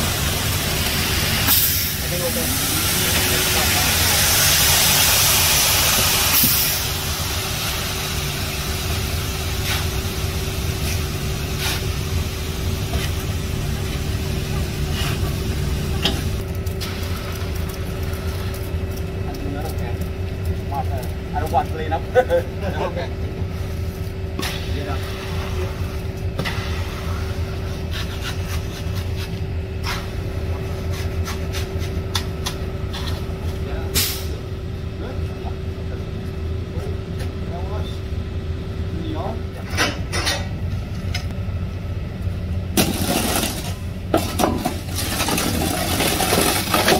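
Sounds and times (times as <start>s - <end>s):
hiss: 0.0s - 10.2s
concrete pouring down chute: 0.0s - 22.9s, 44.6s - 46.9s
truck engine rumbling: 0.0s - 46.9s.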